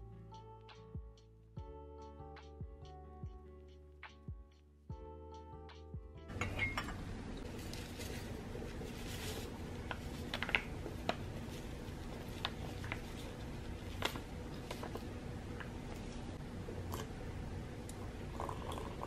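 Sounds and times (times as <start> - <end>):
low room hum: 4.2 - 19.0
paper packet crinkling: 7.5 - 15.1.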